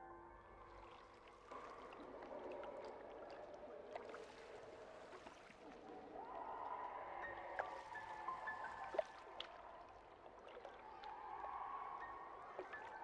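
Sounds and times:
water lapping and gurgling: 0.8s - 13.0s.

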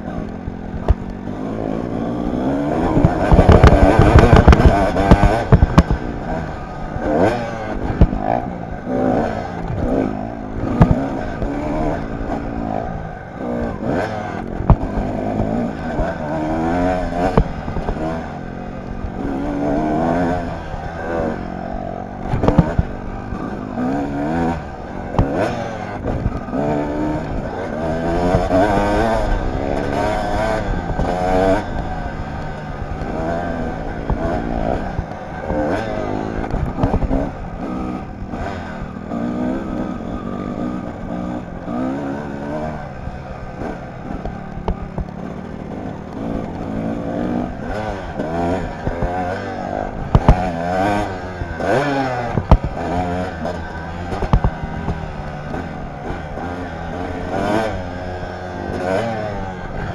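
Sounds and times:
dirt bike engine revving: 0.0s - 59.9s
sharp knocks and clatter: 2.9s - 8.4s, 9.2s - 12.5s, 22.2s - 23.0s, 32.3s - 37.3s, 47.7s - 56.7s.

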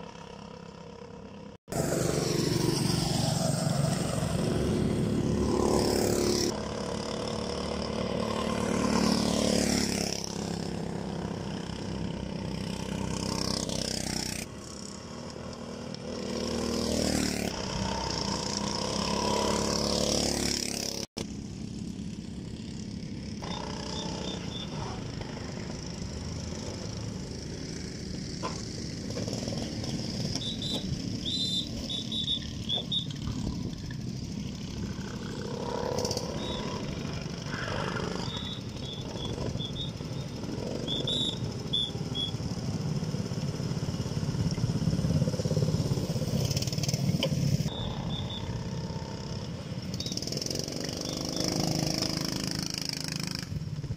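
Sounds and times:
distant kart engines: 0.0s - 53.9s
go-kart engines passing: 0.0s - 53.9s
short high chirps: 30.4s - 33.2s, 38.2s - 42.4s, 47.7s - 48.6s.

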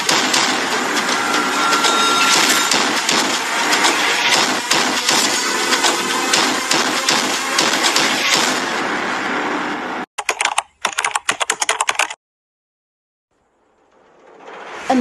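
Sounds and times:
keyboard typing clicks: 10.2s - 12.2s
crackling clatter: 13.4s - 15.0s.

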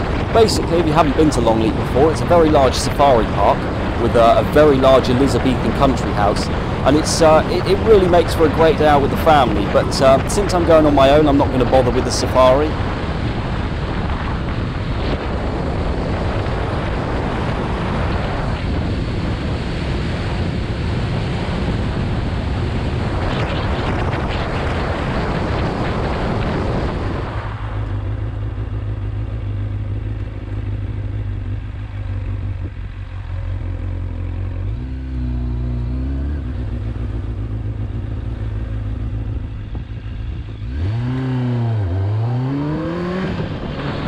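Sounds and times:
wind rushing: 0.0s - 28.4s
motorcycle engine: 0.0s - 44.0s.

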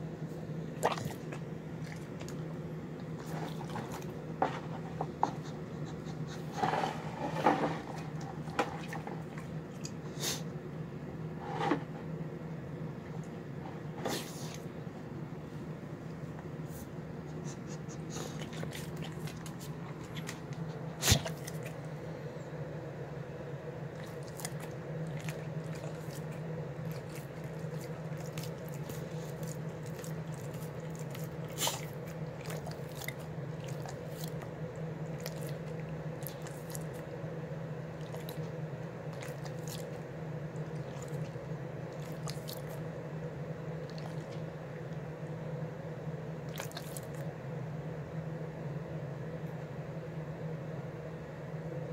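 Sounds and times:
dog eating and licking food: 0.6s - 10.2s, 16.1s - 22.1s, 23.8s - 37.2s, 37.8s - 43.0s, 43.7s - 45.2s, 46.4s - 47.3s.

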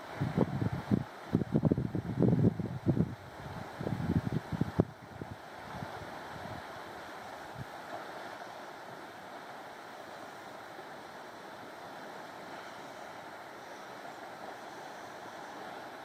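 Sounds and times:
wind bumps on microphone: 0.0s - 6.6s
sea rushing on rocky shore: 0.0s - 16.0s.

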